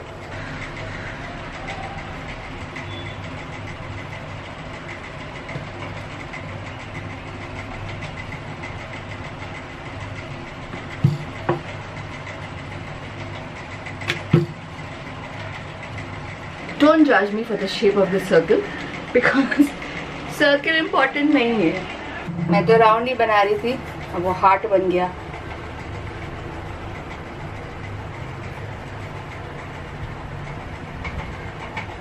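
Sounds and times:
rolling pin knocking board: 0:10.7 - 0:11.7, 0:14.1 - 0:14.6.

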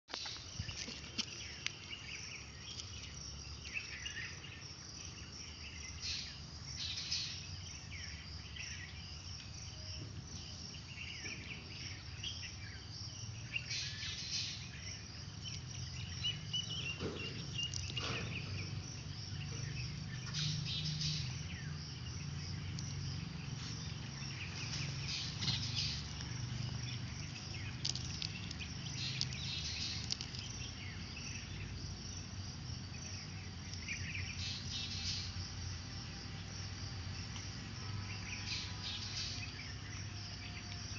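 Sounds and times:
high chirping: 0:13.3 - 0:31.8.

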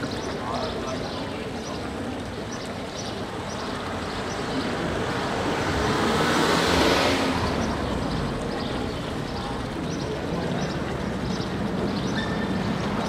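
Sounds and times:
vehicle passing close by: 0:04.7 - 0:08.9.

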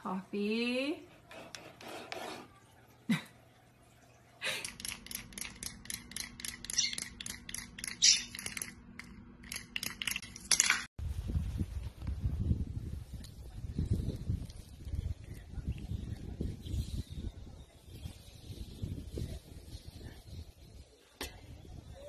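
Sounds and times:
wind-up toy clockwork clicking: 0:04.6 - 0:08.7.

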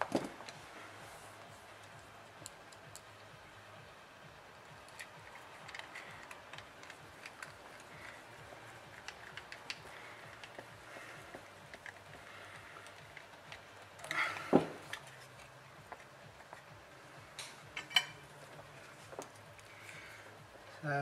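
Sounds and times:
screwdriver and metal parts clicking: 0:04.8 - 0:10.8, 0:17.4 - 0:18.2.

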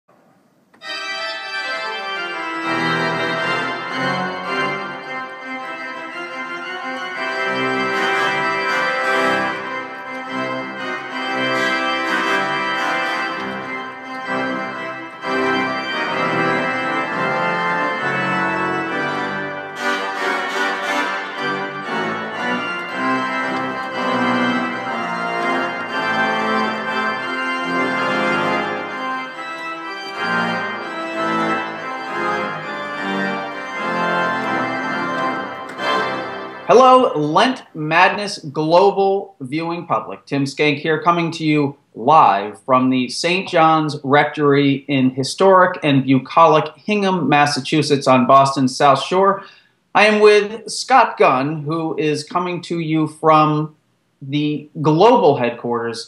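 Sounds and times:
instrumental music with sustained chords: 0:00.8 - 0:36.7.

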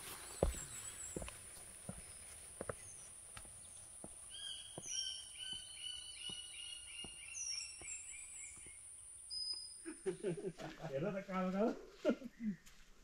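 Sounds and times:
forest bird calling: 0:00.0 - 0:10.3
footsteps on trail: 0:00.0 - 0:13.0.

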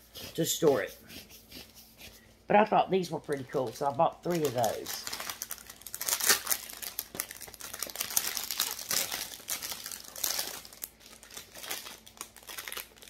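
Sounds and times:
plastic packaging crinkling: 0:03.0 - 0:13.0.

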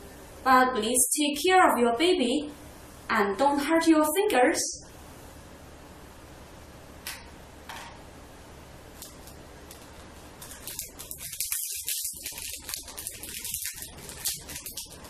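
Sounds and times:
beads clicking and rattling: 0:09.0 - 0:15.0.

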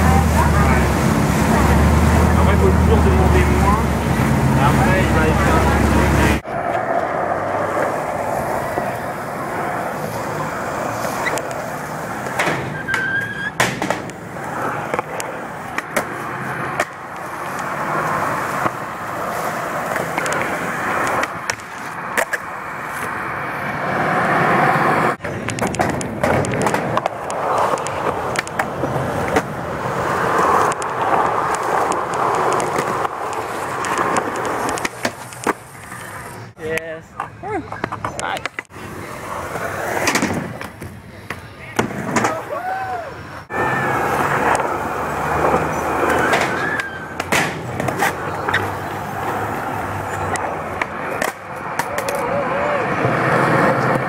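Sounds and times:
skateboard wheels rolling on concrete: 0:00.0 - 0:54.0
skateboard popping and landing clacks: 0:11.1 - 0:18.9, 0:19.8 - 0:23.2, 0:25.2 - 0:36.4, 0:39.5 - 0:42.5, 0:45.4 - 0:52.3.

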